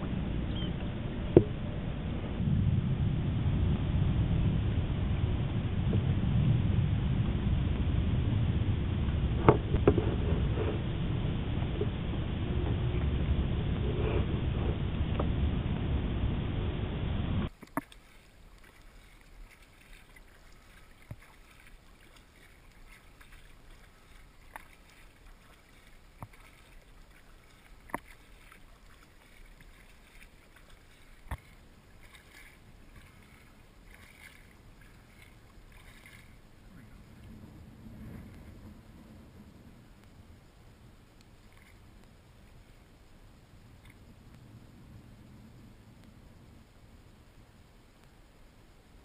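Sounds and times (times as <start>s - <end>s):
paddle splashing and dripping: 17.5s - 49.0s.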